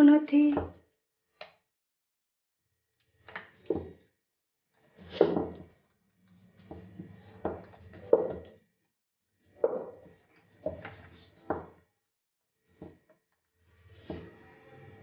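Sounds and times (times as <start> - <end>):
rolling pin rolling dough: 4.8 - 5.8, 6.5 - 8.6, 9.6 - 11.8, 12.7 - 15.0.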